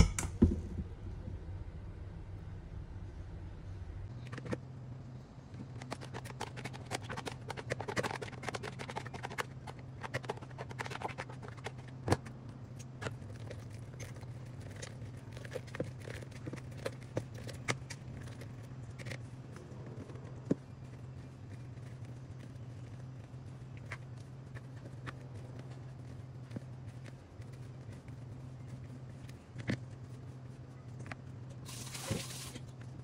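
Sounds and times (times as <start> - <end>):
steady low hum: 0.0 - 33.0
spatula scraping plastic bowl: 5.8 - 12.1.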